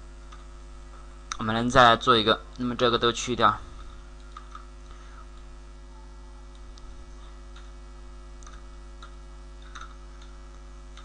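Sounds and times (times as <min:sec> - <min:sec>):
electrical mains hum: 0:00.0 - 0:11.0
computer keyboard clicks: 0:08.4 - 0:11.0.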